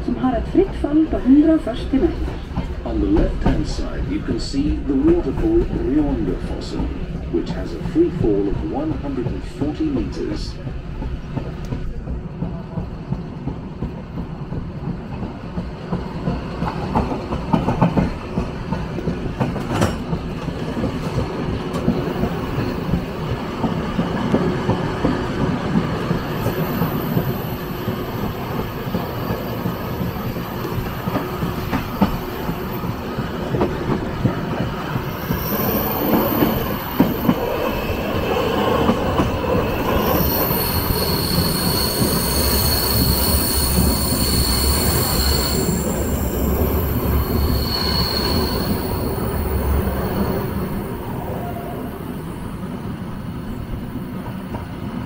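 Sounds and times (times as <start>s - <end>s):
train rumbling along track: 0.0s - 55.0s
high-pitched wheel squeal: 39.8s - 52.2s.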